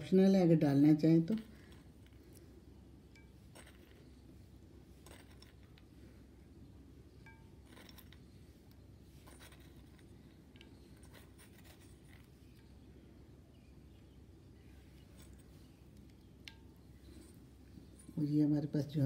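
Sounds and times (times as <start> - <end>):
low room hum: 0.0 - 19.0
faint ticks and clinks: 1.3 - 6.2, 7.1 - 12.9, 14.9 - 19.0.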